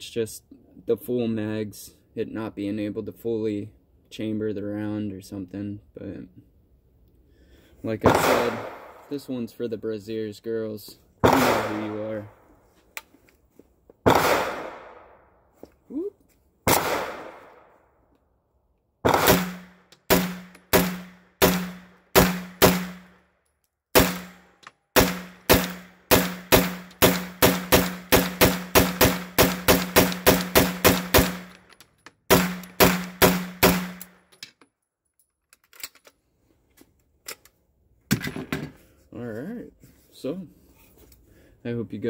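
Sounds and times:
pistol gunshots: 8.0 - 9.2, 11.2 - 12.1, 14.0 - 15.1, 16.7 - 17.7, 19.0 - 23.2, 24.0 - 31.6, 32.3 - 34.2.

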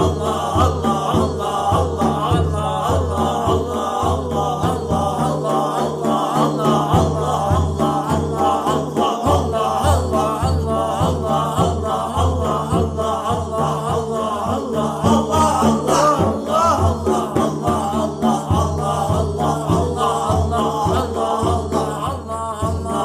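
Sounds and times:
regular rhythmic pulse: 0.0 - 23.0
voices chanting melodically: 0.0 - 23.0.

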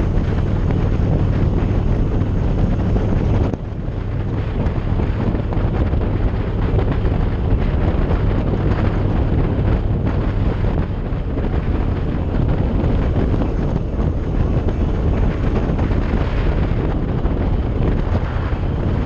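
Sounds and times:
motorcycle engine: 0.0 - 19.0
road noise: 0.0 - 19.0
wind rush on microphone: 0.0 - 19.0.

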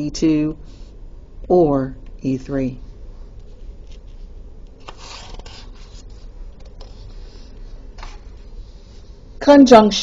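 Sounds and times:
paper rustling on desk: 3.4 - 9.1.

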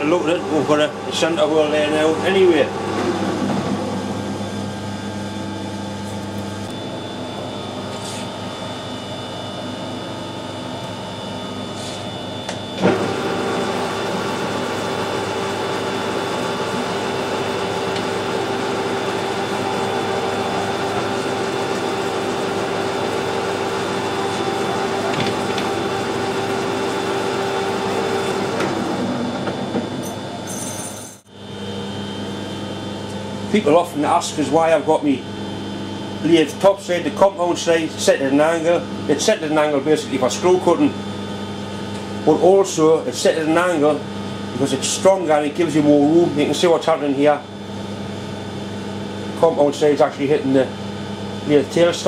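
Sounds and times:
metal lathe running: 0.0 - 30.8.

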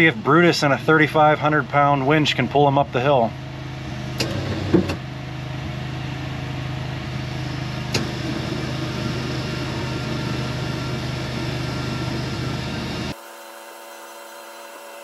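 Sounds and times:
vehicle engine low hum: 0.0 - 13.2.

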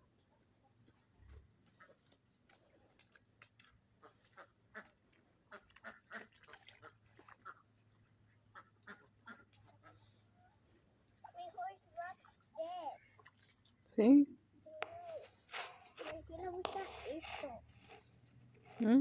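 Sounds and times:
ducks quacking: 4.0 - 7.7, 8.4 - 10.2.

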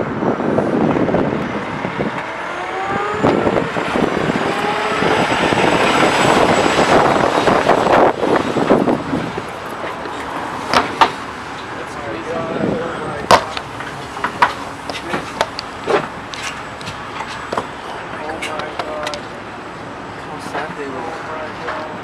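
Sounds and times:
truck passing by: 0.0 - 22.0.

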